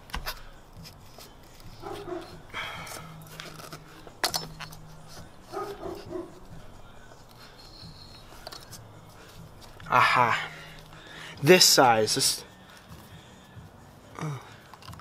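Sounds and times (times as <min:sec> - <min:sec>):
dog barking: 0:01.8 - 0:02.4, 0:05.5 - 0:06.4
wrench clanking on metal cap: 0:04.2 - 0:04.8.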